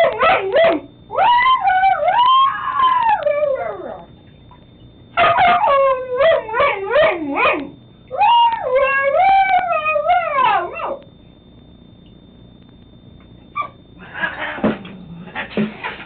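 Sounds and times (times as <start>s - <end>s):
husky howling: 0.0s - 4.1s, 5.2s - 11.0s.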